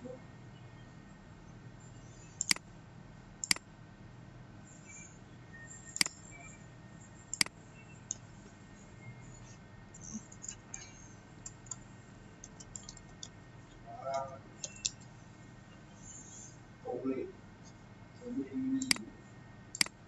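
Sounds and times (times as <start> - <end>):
computer mouse clicks: 2.3 - 2.6, 3.4 - 3.6, 5.9 - 6.4, 7.3 - 8.3, 10.0 - 15.1, 18.8 - 19.1, 19.7 - 20.0.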